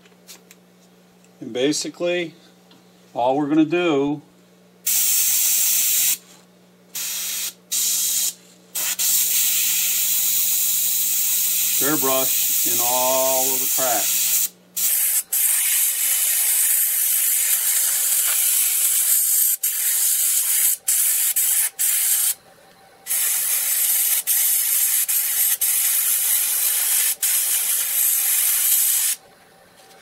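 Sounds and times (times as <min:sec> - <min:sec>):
airbrush spraying hiss: 0:04.9 - 0:06.2, 0:07.0 - 0:22.4, 0:23.1 - 0:29.2.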